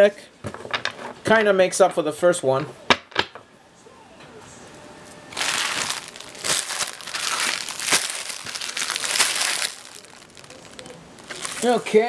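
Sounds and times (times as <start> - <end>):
plastic packaging crinkling: 5.3 - 12.0.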